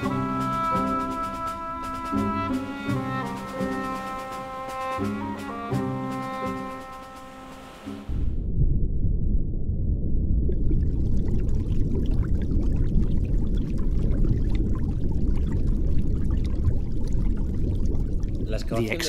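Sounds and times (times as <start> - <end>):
underwater bubbles rushing: 10.1 - 19.0
bubbles popping: 10.4 - 19.0.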